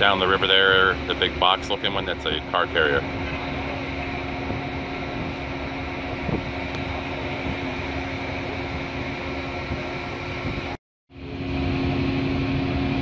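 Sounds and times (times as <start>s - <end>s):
ship machinery hum: 0.0s - 13.0s.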